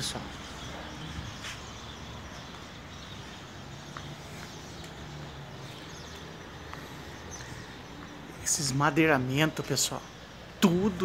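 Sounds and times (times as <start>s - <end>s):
faint engine hum: 0.0s - 8.8s
street background noise: 0.0s - 11.0s.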